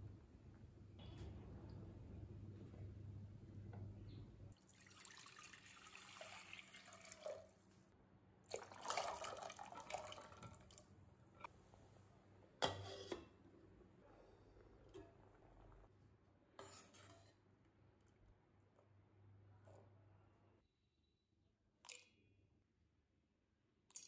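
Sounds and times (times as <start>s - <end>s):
water pouring into saucepan: 4.6s - 7.6s, 8.5s - 10.8s.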